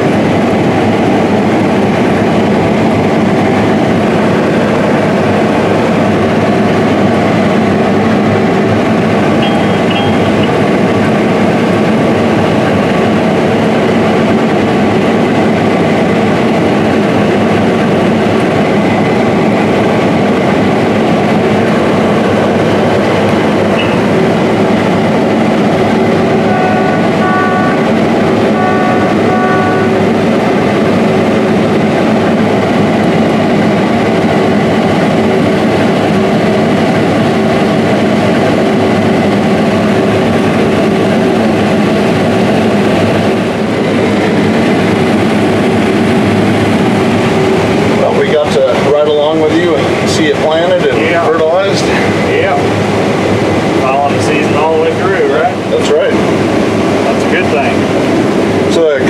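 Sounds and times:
combine harvester drone: 0.0 - 59.0
short electronic beeps: 9.4 - 10.6, 23.8 - 24.0, 26.4 - 27.9, 28.5 - 30.0.

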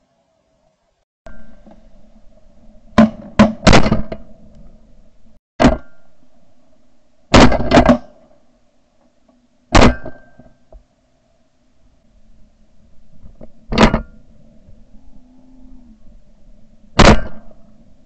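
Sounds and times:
loud shotgun shots: 3.0 - 4.1, 7.3 - 8.1, 9.8 - 10.2, 17.0 - 17.5.

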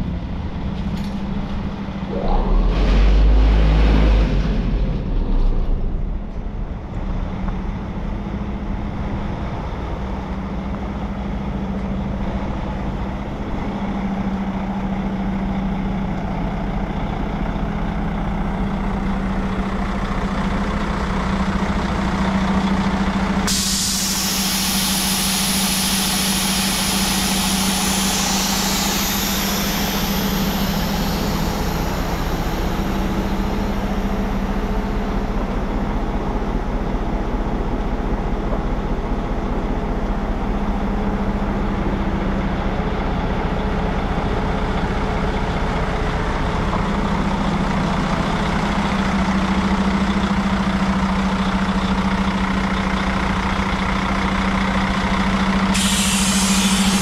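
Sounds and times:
diesel engine idling: 0.0 - 57.0
loud steady hiss: 23.5 - 35.0, 55.8 - 57.0
air-release surges: 23.5 - 35.5, 55.8 - 57.0.

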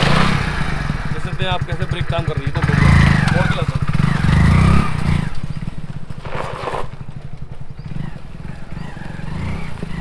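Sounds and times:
motorcycle engine running: 0.0 - 10.0
tyres on gravel: 2.7 - 10.0.

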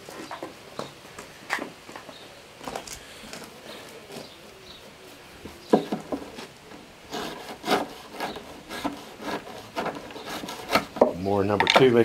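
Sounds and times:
knife sawing through rope: 7.1 - 11.0.

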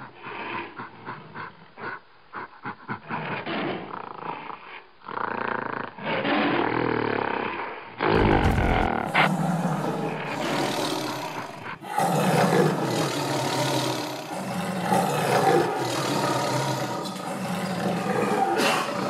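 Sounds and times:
tiger roaring: 8.0 - 19.0.

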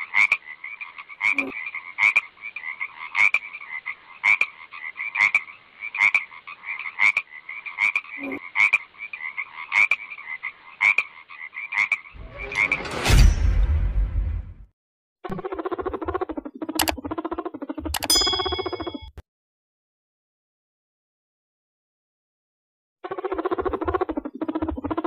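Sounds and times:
frog croaking: 0.0 - 12.7.

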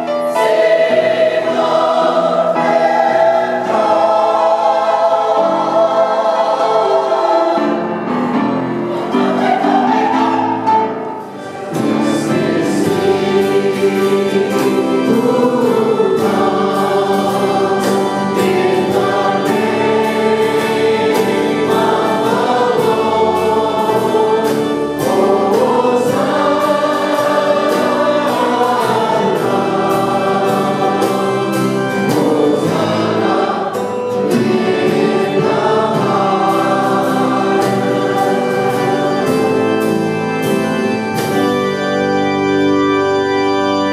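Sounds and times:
acoustic guitar: 0.0 - 43.9
choir singing a hymn: 0.0 - 43.9.

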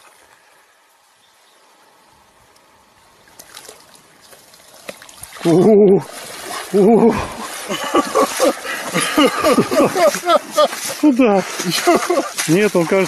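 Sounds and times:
water splashing and sloshing: 3.1 - 13.0.

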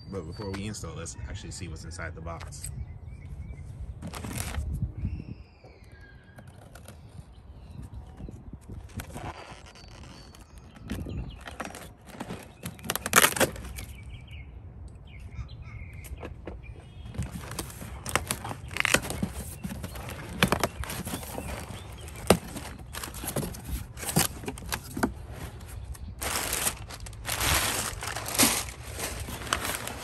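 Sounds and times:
cardboard flaps crackling: 4.0 - 4.8, 8.0 - 14.0, 16.9 - 30.0
packing paper crumpling: 8.7 - 13.9, 17.1 - 30.0.

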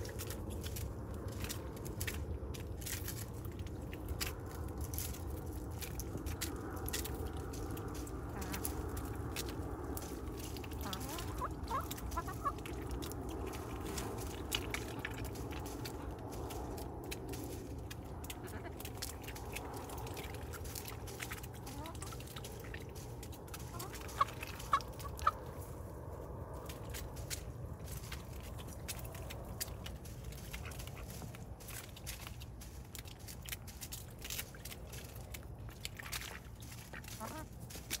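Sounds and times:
hens pecking clicks: 0.0 - 25.6, 26.6 - 38.0
hens clucking: 8.3 - 8.8, 10.7 - 13.2, 18.3 - 19.3, 21.6 - 22.8, 23.5 - 25.4, 36.9 - 37.6.

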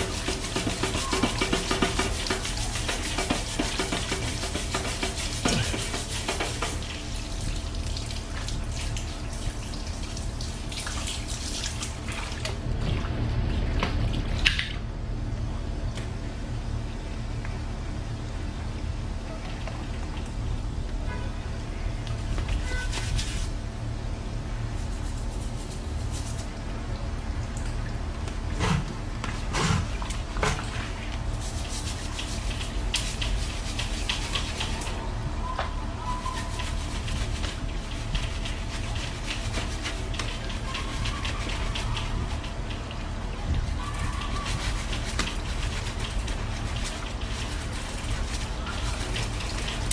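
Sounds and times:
brush scrubbing: 0.0 - 9.0, 22.2 - 23.6, 24.6 - 26.6, 28.6 - 49.9
hose water spraying on bike: 0.0 - 14.4, 19.6 - 27.6, 28.3 - 49.9
water splashing on tiled floor: 0.0 - 14.8, 25.0 - 49.9.

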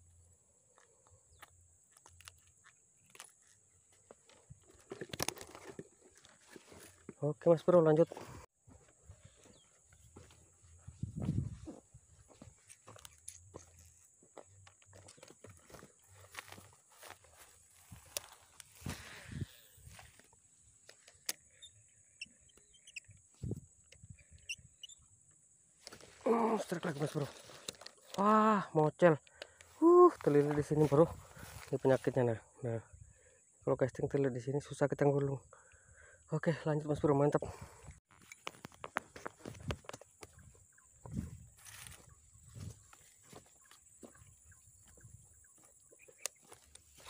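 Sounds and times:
rustling through tall grass: 15.7 - 20.3, 41.1 - 44.2
faint high chirps: 21.5 - 25.1.

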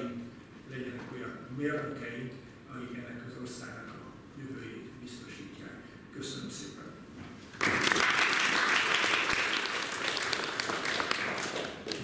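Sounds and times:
audience applauding: 7.6 - 12.0.

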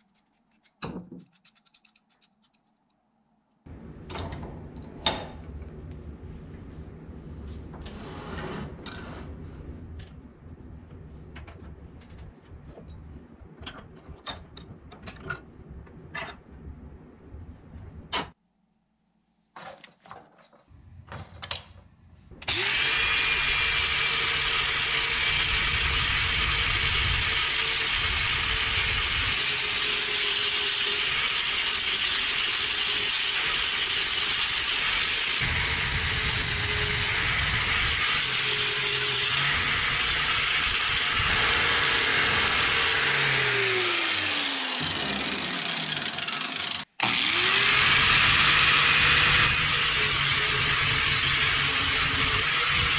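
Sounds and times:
angle grinder grinding steel: 22.4 - 52.9.

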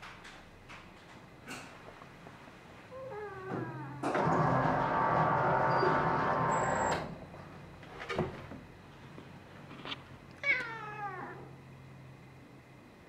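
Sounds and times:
cat meowing: 10.4 - 11.5.

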